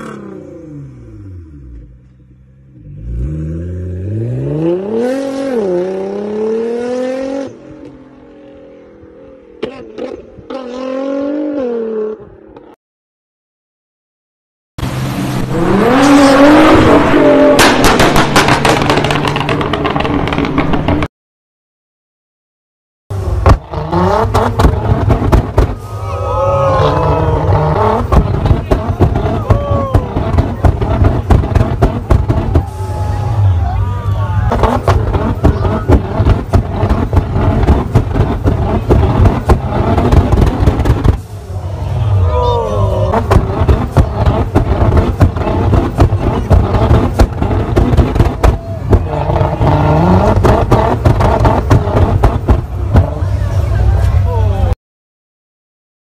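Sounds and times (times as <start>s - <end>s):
car engine revving: 0.0s - 12.7s, 14.8s - 21.1s, 23.1s - 54.4s
exhaust pops and crackles: 17.5s - 21.1s, 23.3s - 25.8s, 27.7s - 33.0s, 34.0s - 41.4s, 43.1s - 53.4s.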